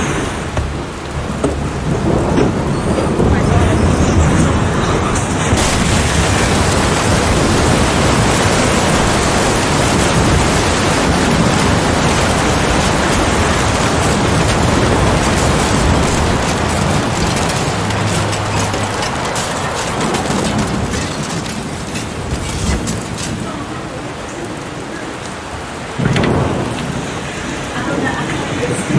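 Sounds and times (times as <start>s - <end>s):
tornado winds and rain: 0.0s - 28.9s
flying debris clicking and knocking: 4.2s - 23.9s.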